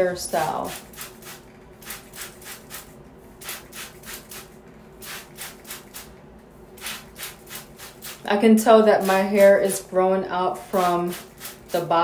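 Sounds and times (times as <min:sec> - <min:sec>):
brush raked through hair: 0:09.0 - 0:09.8, 0:10.8 - 0:11.9.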